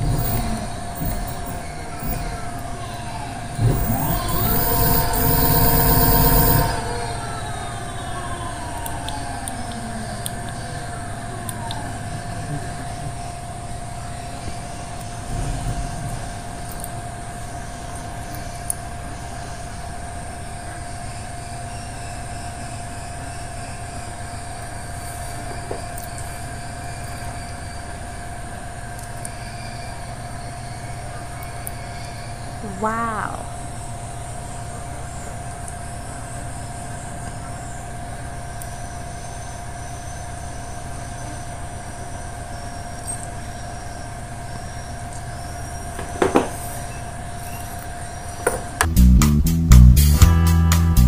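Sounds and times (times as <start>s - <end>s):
electric motor whine and hum: 0.0s - 8.1s
mechanical hum with whine: 0.0s - 49.0s.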